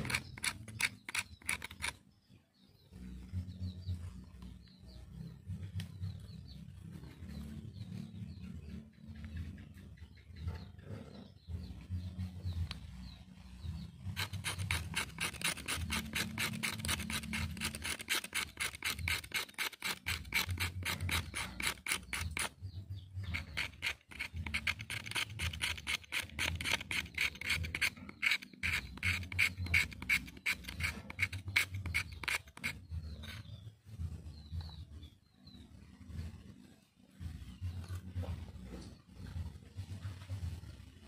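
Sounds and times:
knife scraping wood: 0:00.0 - 0:02.0, 0:14.0 - 0:33.7.

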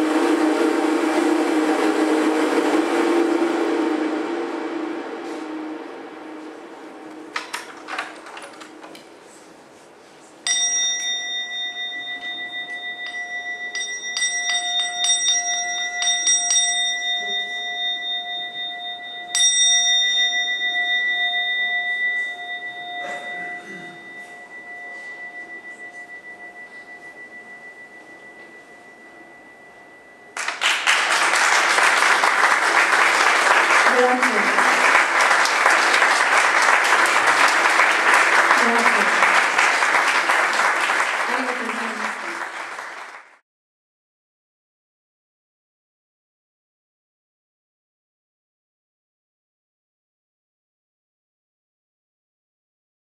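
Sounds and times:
bell ringing: 0:10.4 - 0:42.8.

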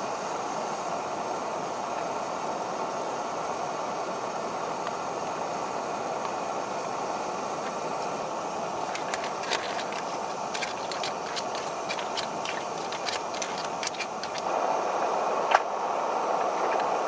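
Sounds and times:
steady rushing hiss: 0:00.0 - 0:17.0
plastic packaging crinkling: 0:08.8 - 0:14.5
spaghetti snapping: 0:08.8 - 0:14.5.

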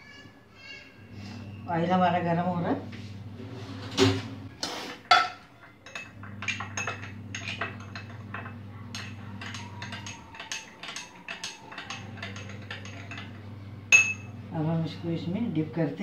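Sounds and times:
spoon clinking against glass bowl: 0:05.1 - 0:14.4.

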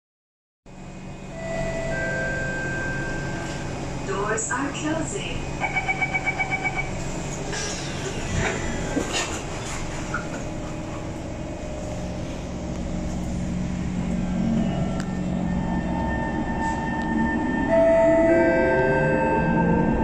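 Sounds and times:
low train motor tone: 0:00.7 - 0:20.0
train running noise: 0:00.7 - 0:20.0.

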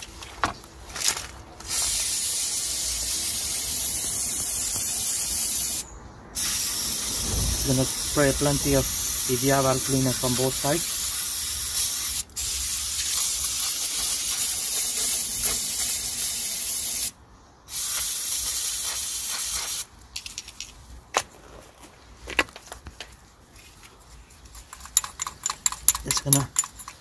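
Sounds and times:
aerosol can spraying: 0:01.7 - 0:05.8, 0:06.4 - 0:17.1, 0:17.7 - 0:19.9.

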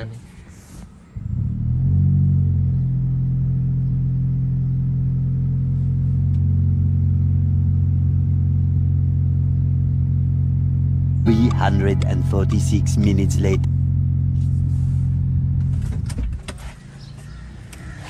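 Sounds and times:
car engine idling: 0:01.2 - 0:16.2.

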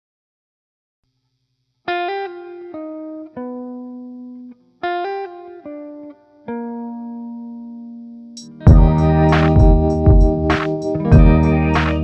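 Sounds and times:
short melody of struck notes: 0:08.4 - 0:12.0.

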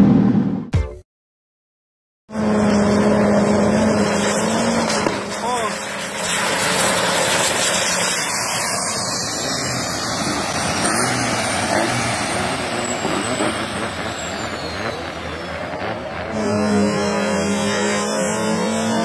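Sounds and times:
boat engines roaring: 0:02.3 - 0:19.0
rush of spray: 0:04.0 - 0:14.4.

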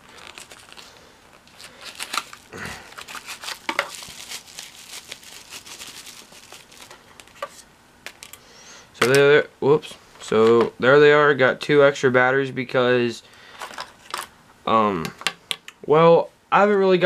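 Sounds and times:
plastic packaging crinkling: 0:00.0 - 0:08.4.

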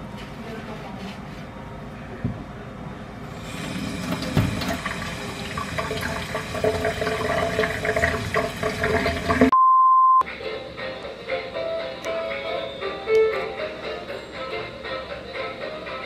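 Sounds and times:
tap running into a sink: 0:03.7 - 0:09.5
high beep: 0:09.5 - 0:10.2.

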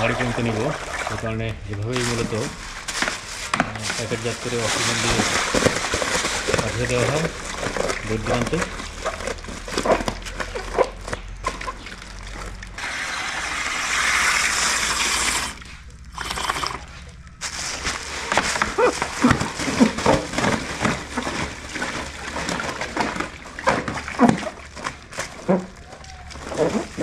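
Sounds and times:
plastic bag crinkling: 0:00.0 - 0:27.0
water sloshing in bag: 0:00.0 - 0:27.0
oxygen hissing from hose: 0:12.8 - 0:16.8.

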